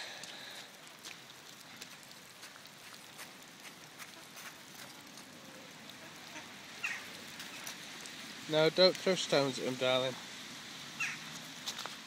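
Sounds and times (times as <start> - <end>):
light rain pattering: 0.0 - 12.0.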